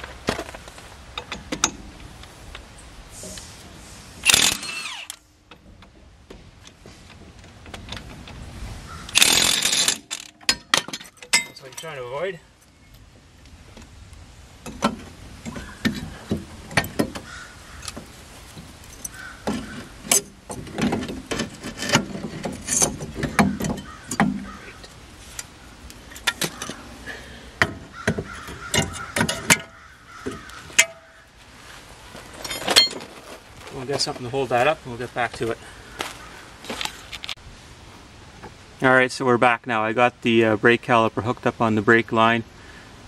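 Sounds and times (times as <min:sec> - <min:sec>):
metallic clinks and knocks: 0:09.2 - 0:12.1.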